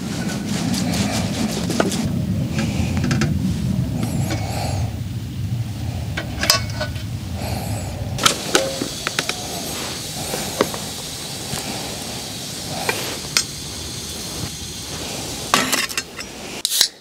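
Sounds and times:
low rumble: 0:00.1 - 0:15.5.

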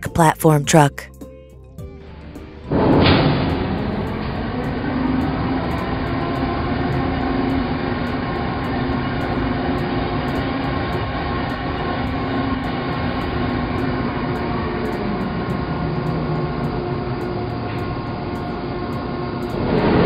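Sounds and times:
heavy vehicle engine running: 0:01.9 - 0:20.0.

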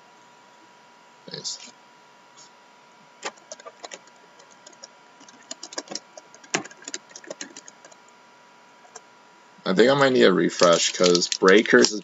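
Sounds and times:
hands clicking and tapping at desk: 0:03.2 - 0:08.0.

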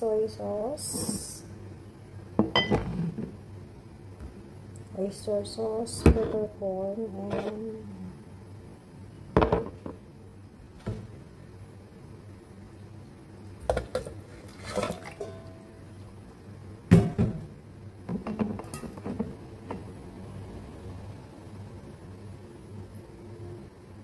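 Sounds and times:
glass jars and pot clinking: 0:02.4 - 0:02.9, 0:14.7 - 0:15.7.

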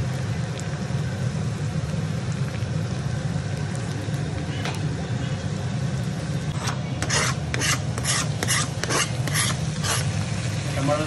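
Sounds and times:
knife scraping plastic board: 0:07.0 - 0:10.1.

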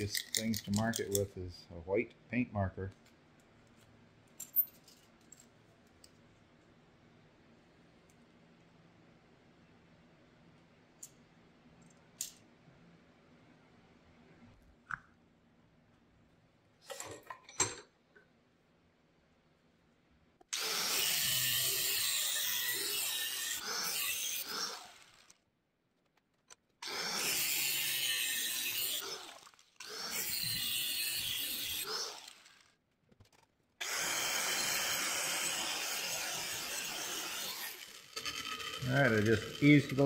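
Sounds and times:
angle grinder cutting steel: 0:20.6 - 0:25.2, 0:26.8 - 0:32.6, 0:33.8 - 0:40.0.

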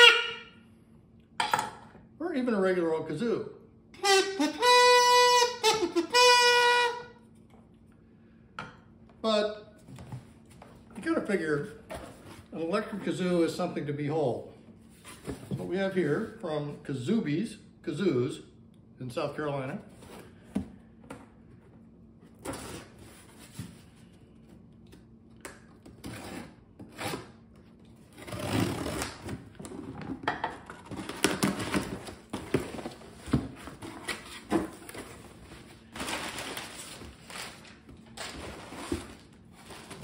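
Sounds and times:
packing tape ripping: 0:28.1 - 0:29.4
packing paper rustling: 0:30.8 - 0:40.0.

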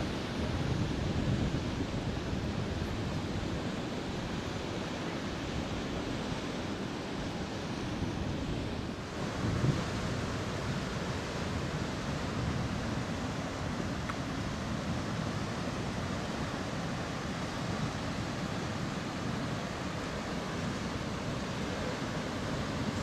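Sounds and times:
wind noise on microphone: 0:00.0 - 0:03.8, 0:07.9 - 0:16.6
choppy water rushing: 0:00.0 - 0:23.0.

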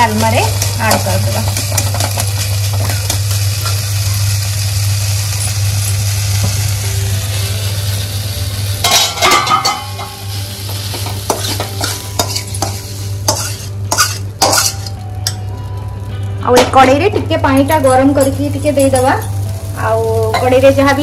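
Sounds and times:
food sizzling in a pan: 0:00.0 - 0:21.0
metal spatula scraping pan: 0:11.3 - 0:15.0.

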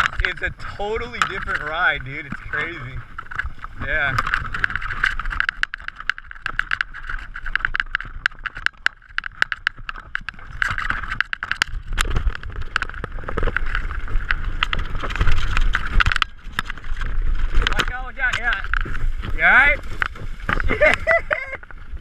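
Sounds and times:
mountain bike rattling: 0:00.0 - 0:22.0
wind rumble on microphone: 0:00.0 - 0:22.0.

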